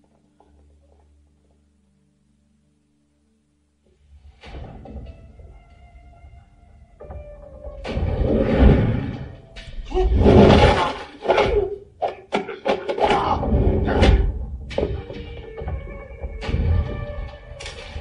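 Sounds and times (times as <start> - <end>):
people grunting: 9.9 - 14.4.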